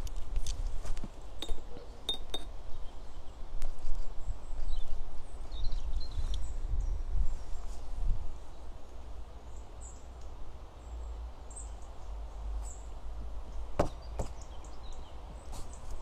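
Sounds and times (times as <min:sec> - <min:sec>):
wind rumble on microphone: 0:00.0 - 0:09.4.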